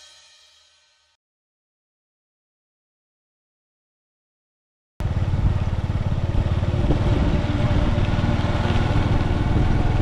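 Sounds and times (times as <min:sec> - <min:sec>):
small motorcycle engine running: 0:05.0 - 0:10.0.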